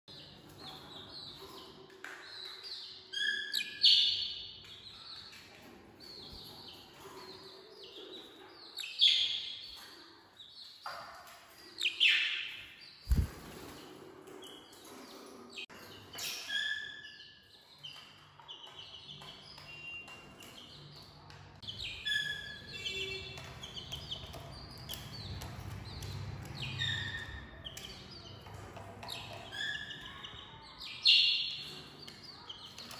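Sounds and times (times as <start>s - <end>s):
budgerigars chirping: 2.4s - 4.4s, 21.6s - 31.8s.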